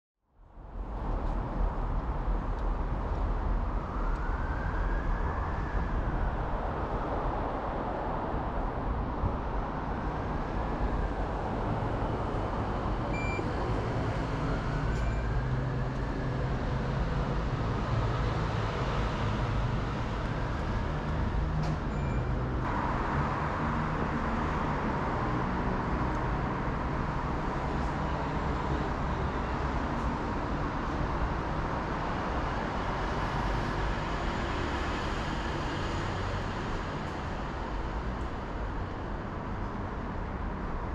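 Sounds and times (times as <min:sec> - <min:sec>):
short beeps: 0:13.2 - 0:13.4.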